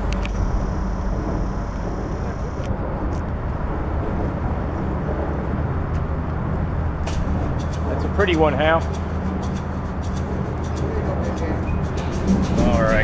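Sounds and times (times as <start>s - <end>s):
low hum: 0.0s - 8.2s
rumble and hiss: 0.0s - 13.0s.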